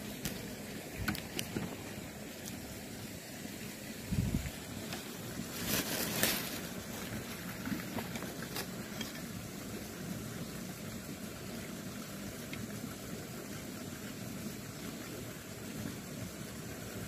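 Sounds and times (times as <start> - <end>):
background hiss: 0.0 - 17.0
scraping rustle: 4.9 - 9.2.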